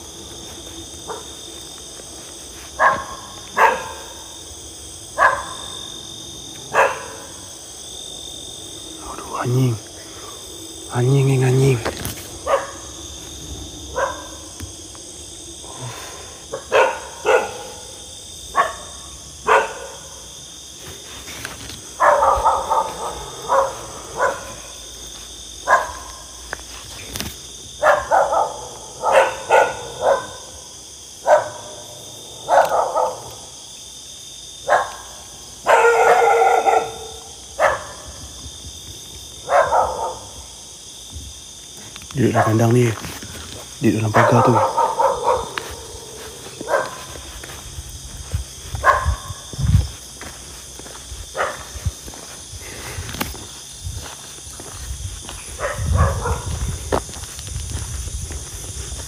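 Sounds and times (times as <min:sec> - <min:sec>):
night insects chirring: 0:00.0 - 0:59.0
dog barking: 0:01.0 - 0:01.4, 0:02.8 - 0:04.4, 0:05.1 - 0:05.8, 0:06.7 - 0:07.5, 0:12.4 - 0:12.9, 0:13.9 - 0:14.5, 0:16.5 - 0:20.3, 0:22.0 - 0:24.8, 0:25.6 - 0:26.2, 0:27.8 - 0:33.5, 0:34.6 - 0:38.2, 0:39.4 - 0:40.5, 0:42.2 - 0:42.7, 0:44.1 - 0:47.2, 0:48.8 - 0:49.4, 0:51.3 - 0:51.8, 0:55.6 - 0:56.7.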